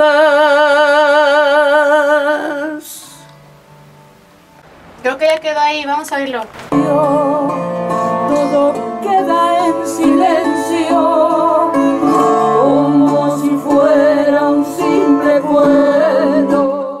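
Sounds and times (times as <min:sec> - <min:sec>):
woman singing with vibrato: 0:00.0 - 0:03.2, 0:06.7 - 0:17.0.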